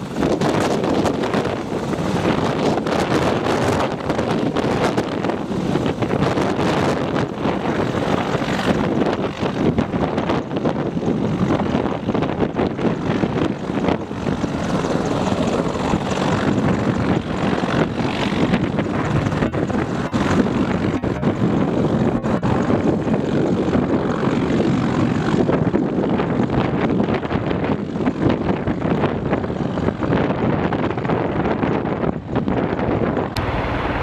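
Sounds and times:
helicopter rotor and turbine noise: 0.0s - 34.0s.

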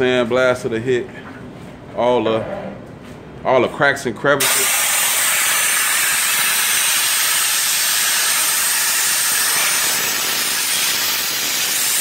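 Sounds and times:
sandblaster hissing: 4.4s - 12.0s.

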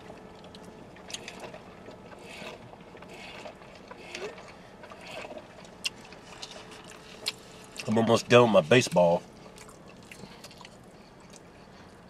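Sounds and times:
chewing: 0.0s - 8.0s, 9.4s - 12.0s.

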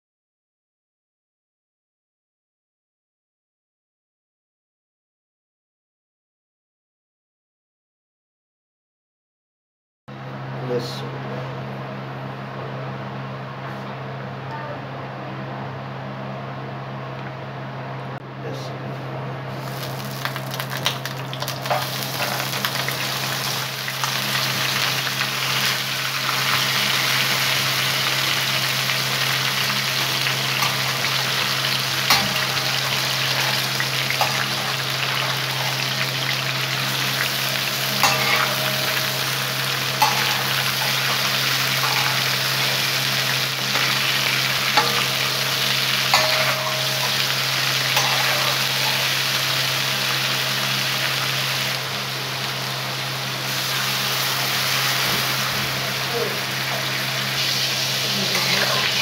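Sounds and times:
meat sizzling in hot oil: 19.5s - 59.0s.

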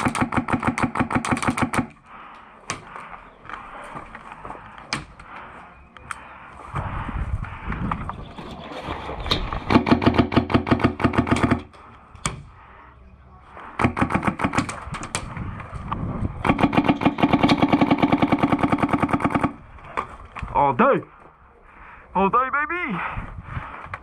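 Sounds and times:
airsoft gun automatic fire: 16.4s - 19.6s.

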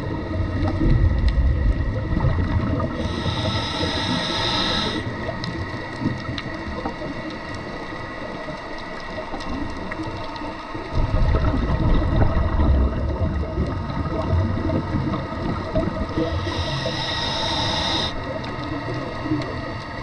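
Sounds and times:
rumble of exhaled bubbles: 0.0s - 20.0s
diver inhaling through regulator: 2.8s - 5.2s, 16.2s - 18.3s.

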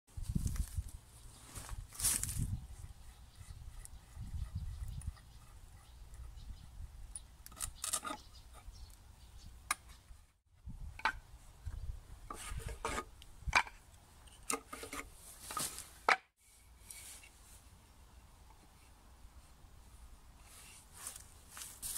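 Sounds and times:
wood scraping: 12.2s - 17.6s.

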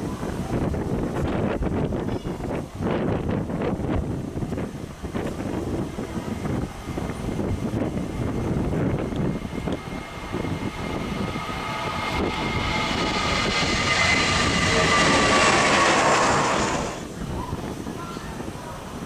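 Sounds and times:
jet engines flying past: 0.0s - 18.0s
low rumble: 6.4s - 17.2s.

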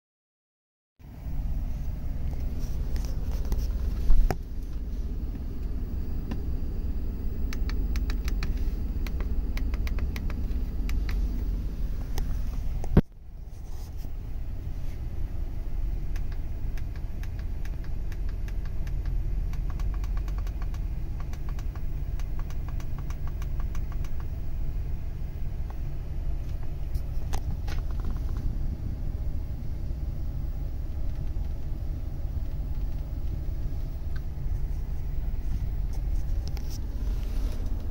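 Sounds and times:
engine idling low rumble: 1.0s - 37.9s.

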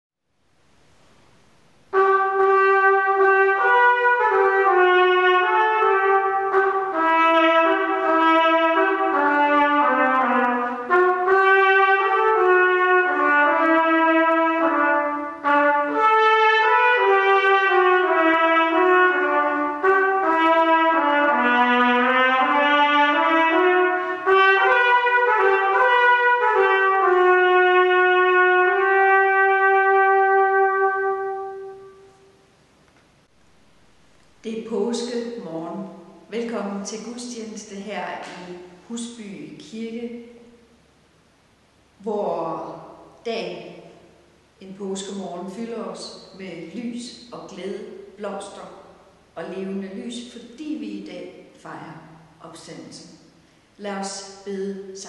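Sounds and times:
trumpet playing slow melody: 1.9s - 32.5s.

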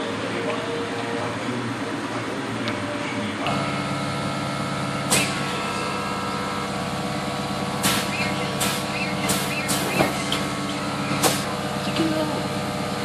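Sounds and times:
air valve bursts: 5.1s - 5.5s, 7.8s - 10.3s, 11.1s - 11.5s.

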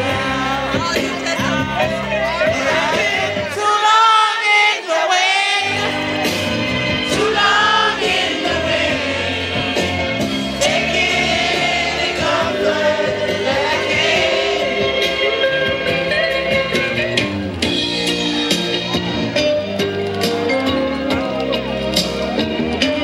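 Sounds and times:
loud dance music with singing: 0.0s - 6.4s.

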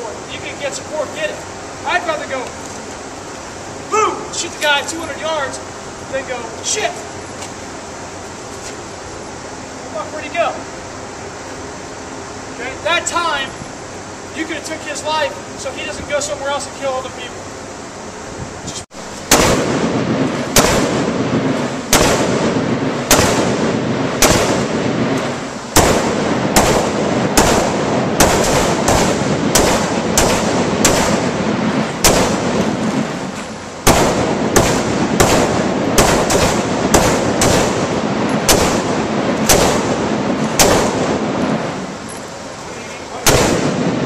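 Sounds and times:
rifle gunshots echoing: 19.3s - 41.9s, 43.2s - 44.0s.

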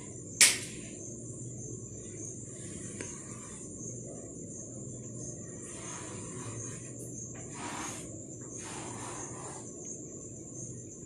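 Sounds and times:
chalk scratching on blackboard: 2.1s - 4.0s, 5.2s - 10.0s.

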